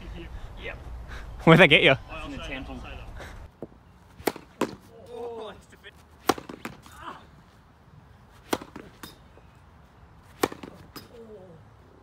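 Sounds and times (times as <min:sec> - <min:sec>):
racquet striking tennis ball: 0:04.2 - 0:04.9, 0:06.2 - 0:06.9, 0:08.4 - 0:09.3, 0:10.3 - 0:11.1.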